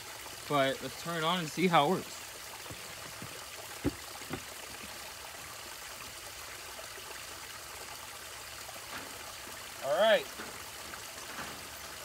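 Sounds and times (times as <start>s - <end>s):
water trickling in pond: 0.0s - 12.0s
short sharp knocks: 3.2s - 4.5s.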